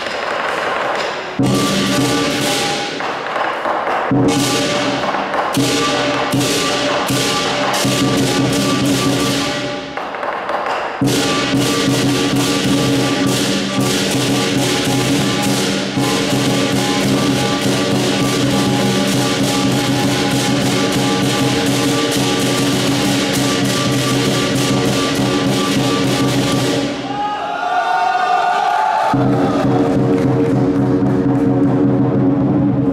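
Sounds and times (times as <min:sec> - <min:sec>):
big drum beaten rapidly: 0:00.0 - 0:10.1, 0:11.0 - 0:27.1, 0:29.1 - 0:32.9
cymbals and gong ringing: 0:01.0 - 0:03.3, 0:04.1 - 0:10.0, 0:11.0 - 0:27.1.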